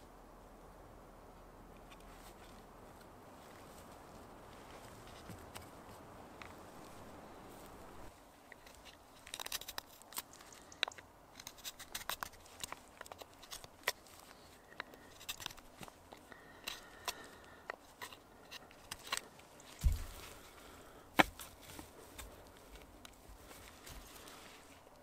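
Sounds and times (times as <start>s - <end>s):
knife shaving wood: 8.5s - 25.0s.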